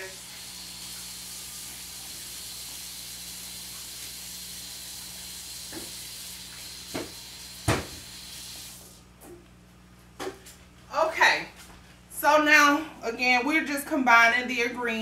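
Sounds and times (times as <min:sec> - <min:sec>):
tap water running into sink: 0:00.0 - 0:08.9.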